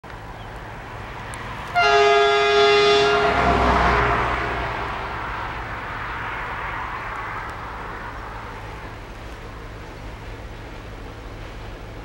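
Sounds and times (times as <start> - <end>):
locomotive horn blast: 1.7 - 5.4
low rumble: 2.9 - 11.6.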